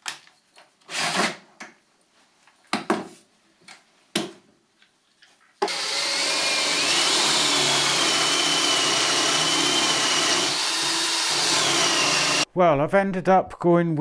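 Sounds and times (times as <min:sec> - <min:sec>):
cordless drill boring into wood: 0:05.6 - 0:12.4.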